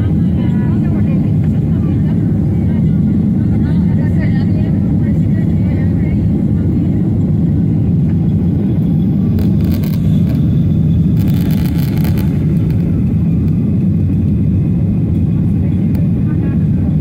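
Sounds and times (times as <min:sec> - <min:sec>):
jet engine roar in cabin: 0:00.0 - 0:17.0
rushing air: 0:09.3 - 0:14.1.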